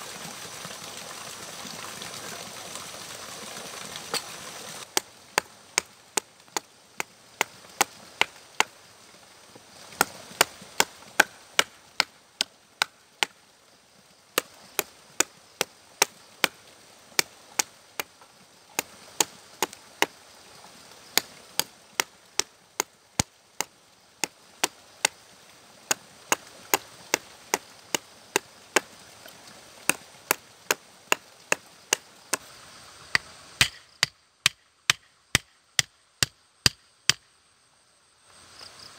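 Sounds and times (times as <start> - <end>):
wood chopping strikes: 4.1 - 8.8, 9.9 - 13.4, 14.4 - 16.6, 17.2 - 18.2, 18.8 - 20.2, 21.2 - 25.2, 25.9 - 28.9, 29.9 - 32.5, 33.1 - 37.3.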